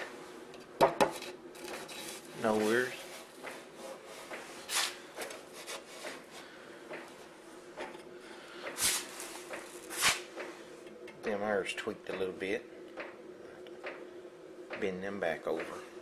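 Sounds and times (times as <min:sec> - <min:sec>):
faint steady hum: 0:00.0 - 0:16.0
hand rubbing on metal: 0:01.8 - 0:06.5.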